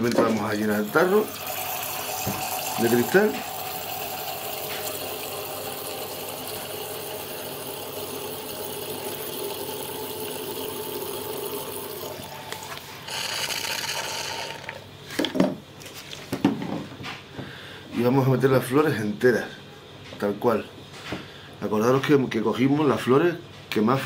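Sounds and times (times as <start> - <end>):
liquid pouring into a jar: 0.4 - 14.9.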